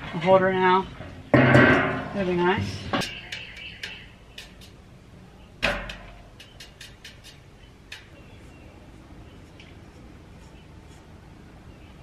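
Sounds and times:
knock on metal can: 1.4s - 3.4s
rod stirring paint in metal can: 3.0s - 4.8s, 5.7s - 11.2s.

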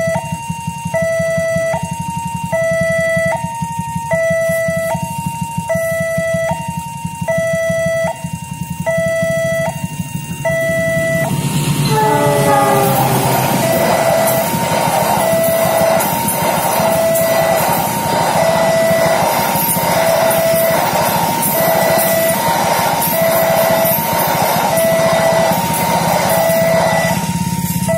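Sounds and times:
two-tone crossing alarm: 0.0s - 27.9s
train wheels clattering on rails: 11.2s - 27.9s.

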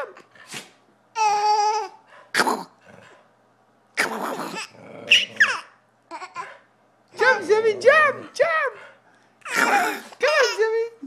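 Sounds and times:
dogs barking and growling: 4.0s - 5.8s
toddler laughing squeals: 4.0s - 6.5s, 9.5s - 10.7s.

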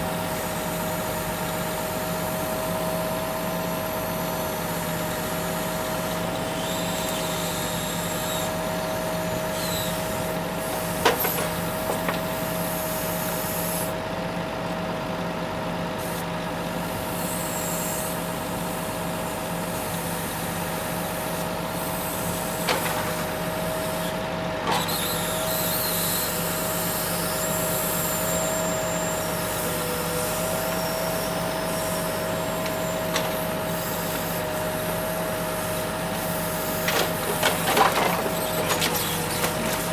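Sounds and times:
hydraulic high whine: 0.1s - 13.9s.

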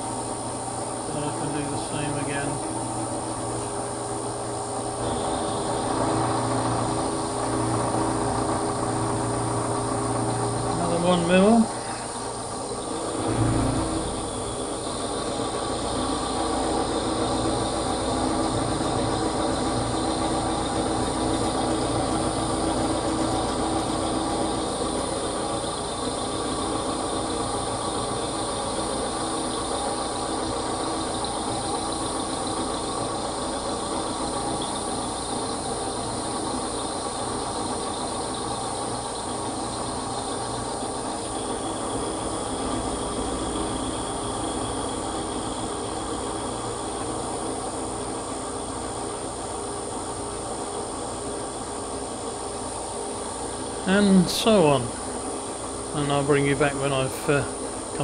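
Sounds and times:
milling machine cutting: 0.0s - 48.6s.

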